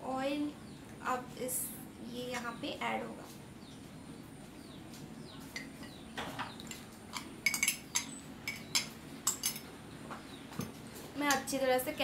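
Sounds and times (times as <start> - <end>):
metal spoon clinking against bowl: 7.2 - 9.7.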